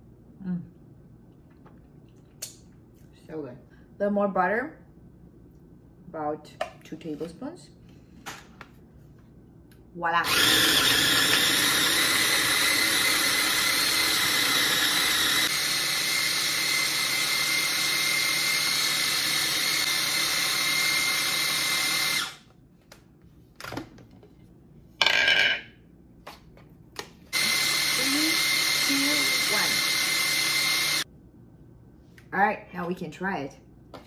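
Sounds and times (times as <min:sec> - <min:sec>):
food processor motor running: 0:10.2 - 0:22.4, 0:27.3 - 0:31.0.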